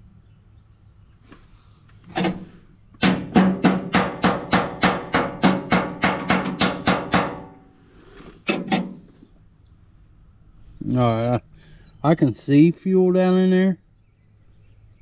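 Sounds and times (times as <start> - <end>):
sharp ringing knocks: 3.0 - 7.7.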